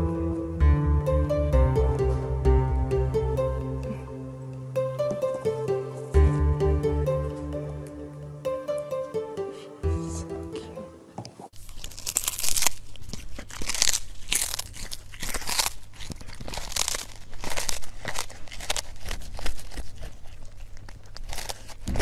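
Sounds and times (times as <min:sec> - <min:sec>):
cat crunching fish: 0:11.5 - 0:22.0.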